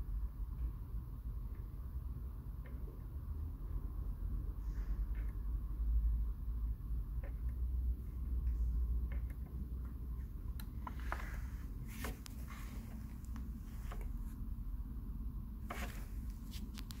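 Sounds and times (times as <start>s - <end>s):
low steady hum: 0.0s - 17.0s
gloved hand rustling: 10.8s - 14.4s, 15.6s - 17.0s.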